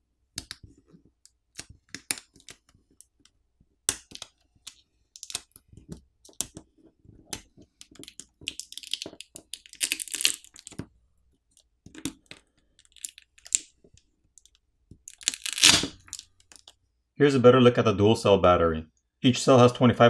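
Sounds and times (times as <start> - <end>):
adhesive tab peeling: 7.4 - 10.8, 15.1 - 16.6.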